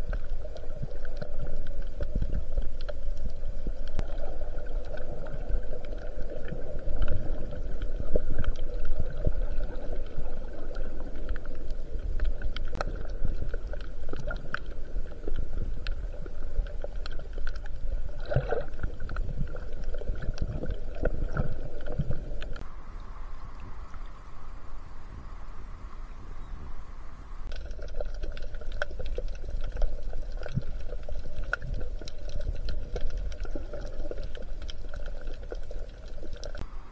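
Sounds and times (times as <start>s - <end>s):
sharp underwater clicks and pops: 0.0s - 22.6s, 27.4s - 36.6s
steady hum: 0.0s - 27.8s, 36.5s - 36.9s
underwater rumble of moving water: 0.0s - 36.9s.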